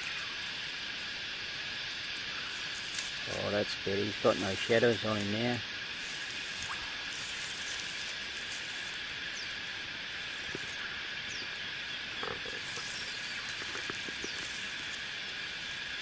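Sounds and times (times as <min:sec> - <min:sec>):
chorus of calling animals: 0:00.0 - 0:16.0
faint clicks: 0:12.2 - 0:15.0.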